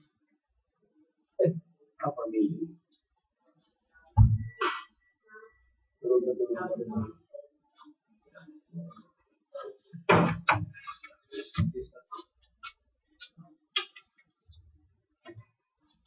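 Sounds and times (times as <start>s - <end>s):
loud thumps: 4.2s - 4.8s, 10.1s - 10.7s.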